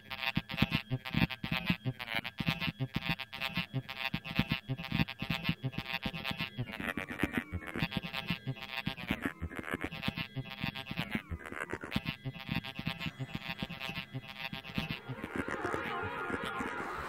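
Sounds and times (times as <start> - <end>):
trumpet and electronics music: 12.2 - 17.0.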